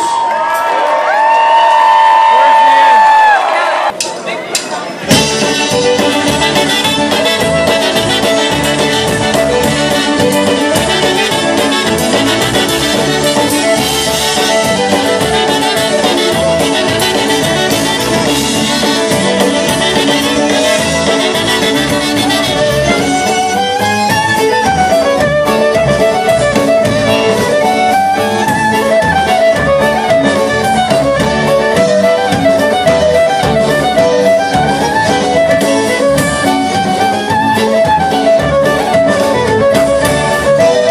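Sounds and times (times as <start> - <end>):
accordion: 5.1 - 40.9
fiddle: 5.1 - 40.9
trumpets: 5.1 - 40.9.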